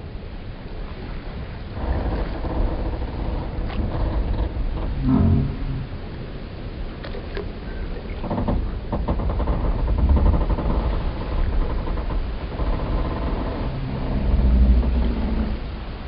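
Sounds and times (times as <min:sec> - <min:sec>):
deep rumble: 0:01.4 - 0:06.9, 0:07.5 - 0:16.0
wooden timbers creaking and groaning: 0:01.8 - 0:06.1, 0:07.8 - 0:16.0.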